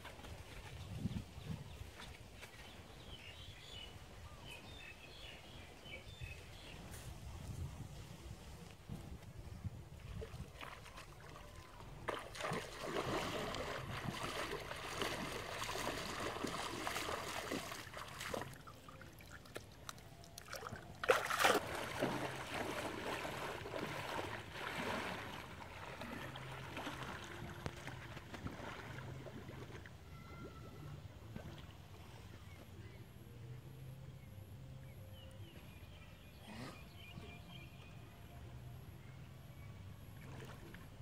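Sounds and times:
water splashing and trickling: 7.5s - 32.4s, 40.0s - 41.0s.

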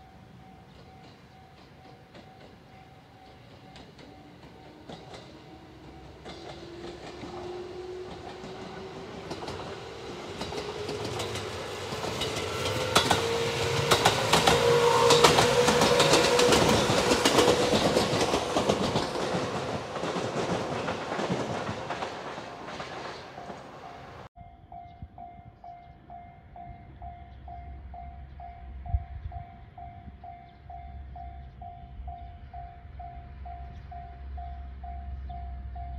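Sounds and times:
level-crossing warning bell: 0.0s - 20.6s
wheels clattering over rail joints: 0.7s - 24.3s
electric train motor whine: 4.6s - 19.2s.

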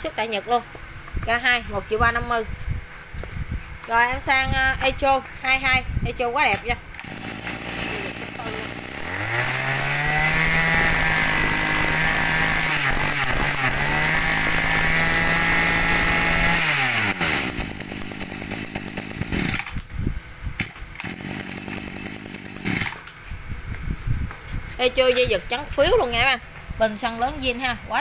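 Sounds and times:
brush cutter engine revving: 6.9s - 19.9s, 20.6s - 23.2s.

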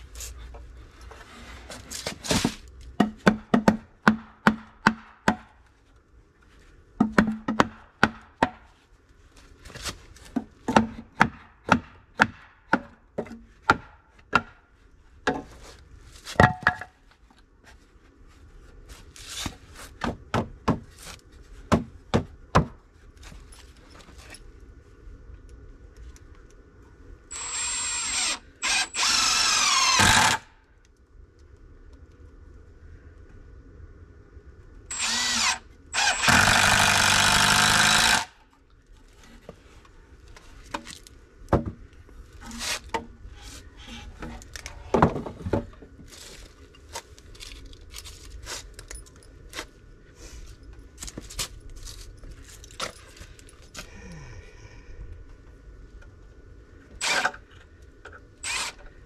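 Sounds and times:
cordless driver motor whine: 34.9s - 38.3s, 58.4s - 58.8s.

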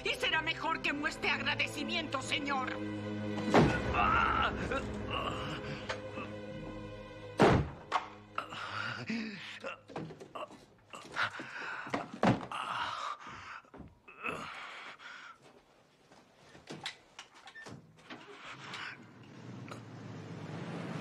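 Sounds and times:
man gasping and groaning: 3.8s - 6.4s, 8.4s - 15.4s.

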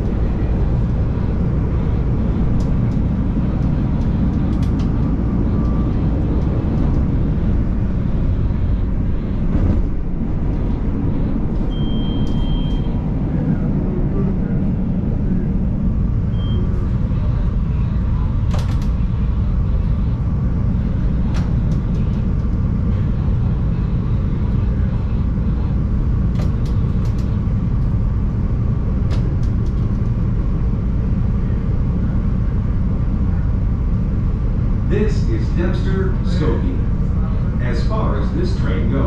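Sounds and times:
train rumble: 0.0s - 39.0s
faint tone: 11.6s - 13.6s, 16.3s - 18.3s.

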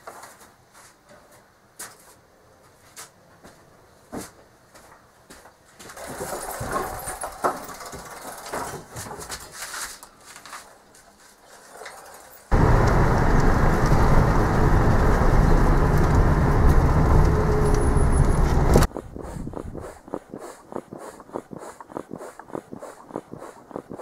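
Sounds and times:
car engine and road noise: 12.5s - 20.0s.

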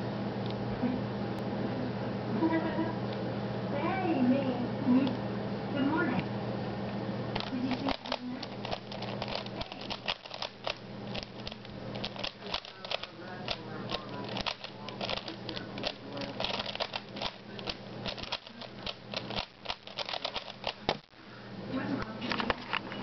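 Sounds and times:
puzzle cube clicking and clacking: 7.4s - 21.1s.

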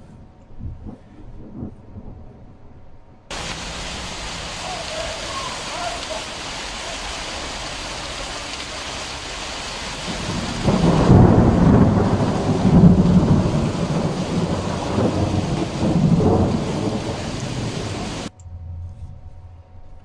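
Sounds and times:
rolling thunder rumble: 0.5s - 18.3s
steady rain falling: 3.3s - 18.3s.

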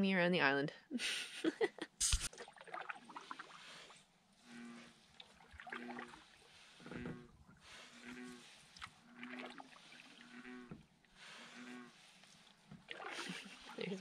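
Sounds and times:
canoe paddle splashing: 2.1s - 14.0s
frogs croaking: 4.4s - 12.0s.

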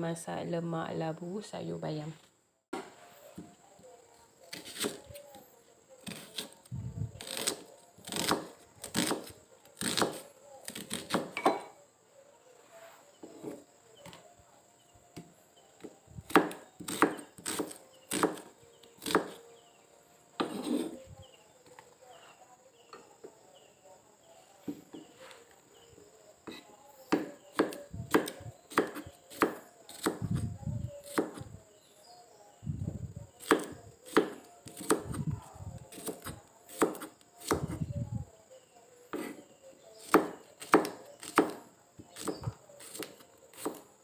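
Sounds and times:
knife chopping on wooden board: 7.2s - 11.7s, 15.8s - 19.4s, 20.4s - 21.0s, 26.5s - 30.4s, 31.1s - 31.4s, 33.4s - 35.1s, 35.9s - 37.8s, 39.1s - 39.4s, 40.0s - 41.6s, 42.2s - 43.8s.

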